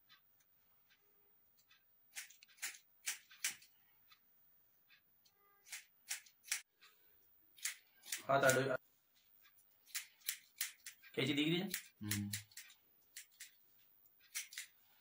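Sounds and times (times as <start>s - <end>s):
scissors snipping hair: 1.6s - 3.8s, 5.6s - 6.7s, 7.6s - 8.8s, 9.8s - 13.6s, 14.2s - 14.8s.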